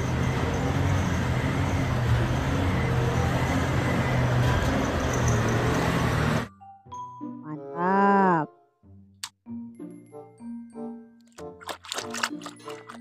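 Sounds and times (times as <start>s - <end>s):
haul truck diesel engine droning: 0.0s - 6.5s.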